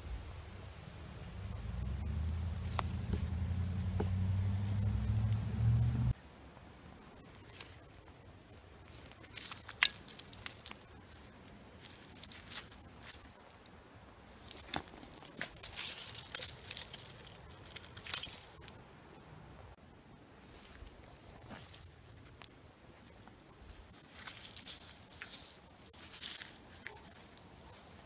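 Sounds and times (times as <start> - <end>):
trowel digging in soil and leaves: 1.1 - 5.6, 14.3 - 18.8, 23.8 - 28.0.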